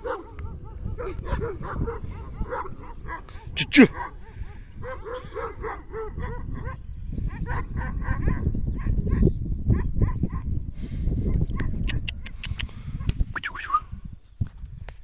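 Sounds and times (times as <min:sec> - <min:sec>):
dogs barking: 0:00.0 - 0:10.6.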